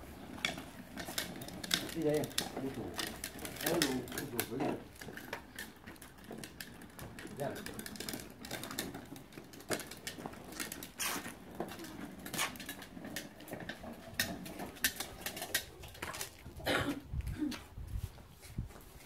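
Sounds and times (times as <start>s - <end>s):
plastic toy wheelbarrow rattling: 0.1s - 16.6s
child's shuffling footsteps: 17.0s - 19.0s.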